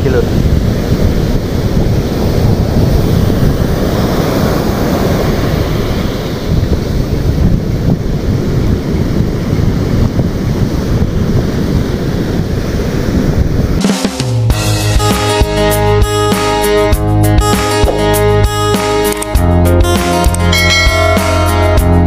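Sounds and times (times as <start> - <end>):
ocean surf breaking on beach: 0.0 - 16.9
wind buffeting microphone: 0.0 - 22.0.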